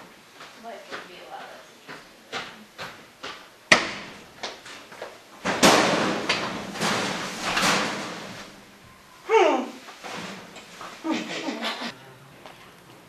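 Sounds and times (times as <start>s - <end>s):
thuds and bangs echoing: 3.7s - 4.2s, 5.4s - 8.7s.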